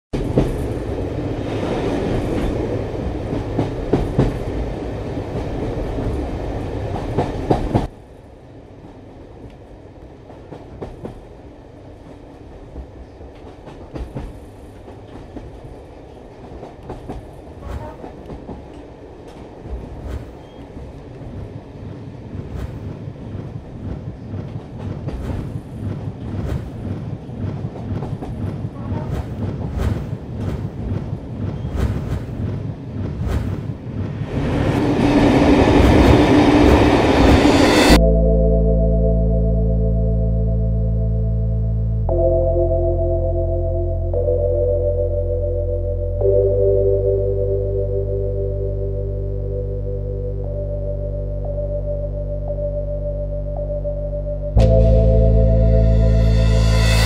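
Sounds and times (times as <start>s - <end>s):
train rumbling with clicks: 0.1s - 38.0s.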